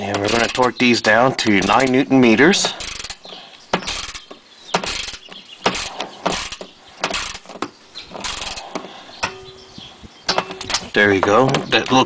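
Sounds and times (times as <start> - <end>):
ratchet wrench clicking: 0.1 - 0.8, 2.6 - 7.5, 8.2 - 8.7.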